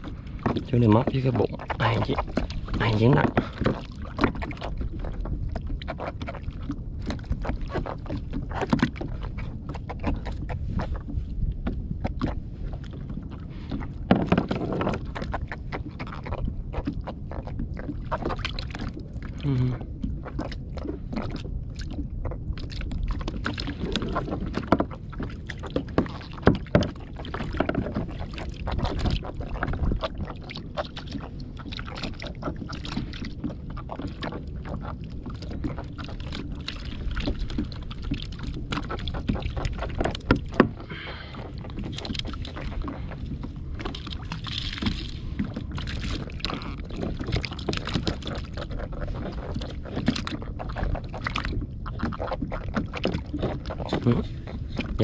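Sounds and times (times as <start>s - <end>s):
steady low rumble: 0.0s - 55.0s
water lapping against kayak: 0.0s - 55.0s
knocks on plastic hull: 14.1s - 15.0s.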